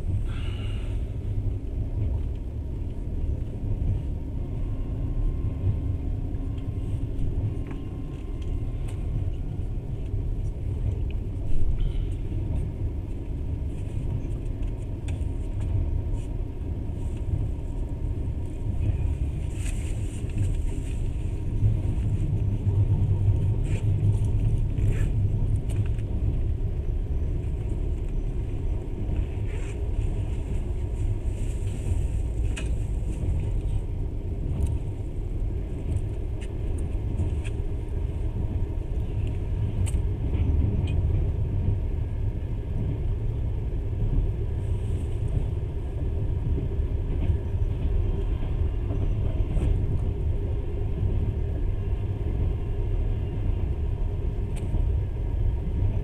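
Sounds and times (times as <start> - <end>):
train rumble inside carriage: 0.0 - 56.0.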